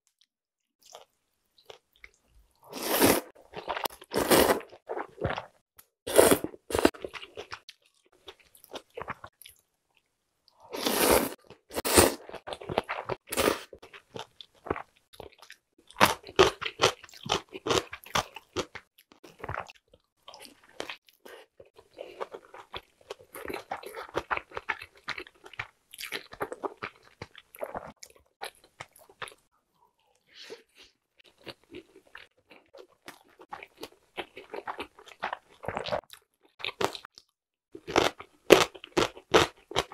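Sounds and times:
chewing with mouth full: 12.2s - 39.9s.

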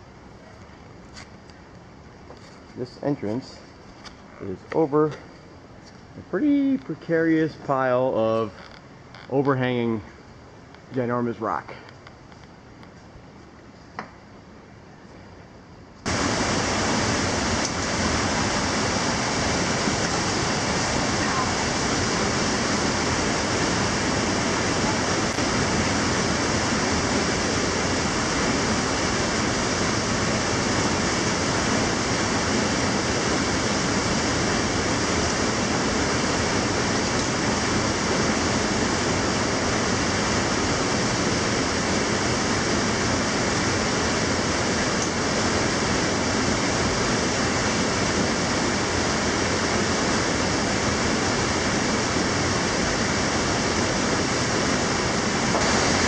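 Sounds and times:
steady rushing noise: 16.0s - 56.0s.

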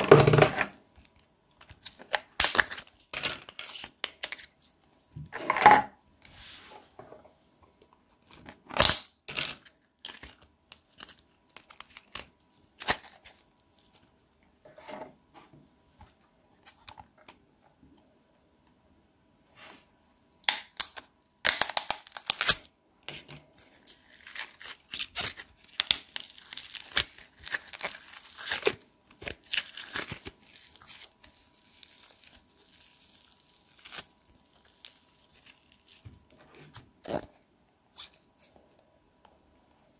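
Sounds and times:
slime crackling and tearing: 20.5s - 22.6s, 23.7s - 36.0s.

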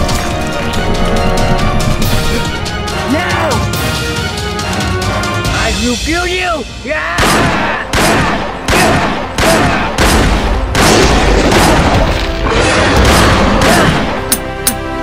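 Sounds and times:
music: 0.0s - 15.0s
heavy booms and crashes: 7.2s - 14.2s.

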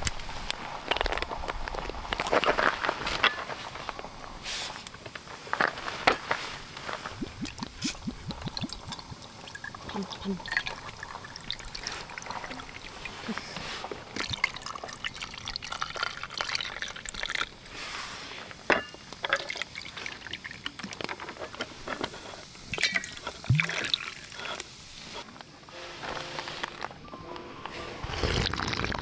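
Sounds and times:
drinks pouring over ice: 7.0s - 17.9s, 19.0s - 24.8s, 28.0s - 29.0s
ice clinking: 7.2s - 13.4s, 14.1s - 17.8s, 18.7s - 21.7s, 22.7s - 24.7s, 28.0s - 29.0s.

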